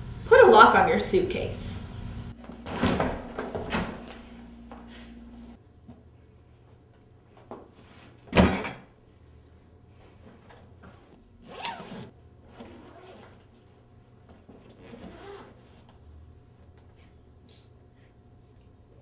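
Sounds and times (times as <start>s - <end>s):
zipper being pulled: 11.4s - 13.6s, 14.6s - 15.9s.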